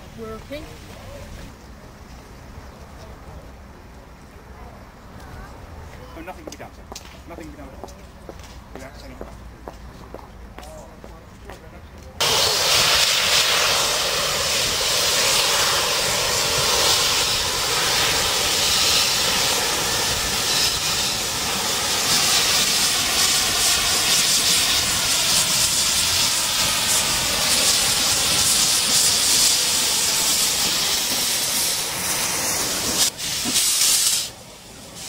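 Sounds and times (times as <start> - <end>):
steam locomotive hissing steam: 12.2 - 35.0.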